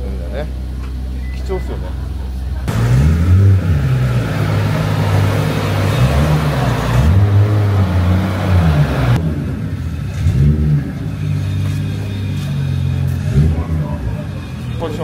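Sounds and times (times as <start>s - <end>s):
car engine revving: 2.6s - 15.0s
rough exhaust rush: 2.6s - 15.0s.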